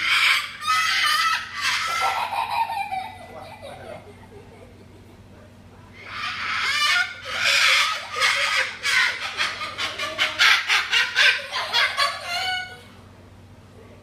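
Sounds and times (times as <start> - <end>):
cockatoo screeching: 0.0 - 2.8, 6.0 - 12.9.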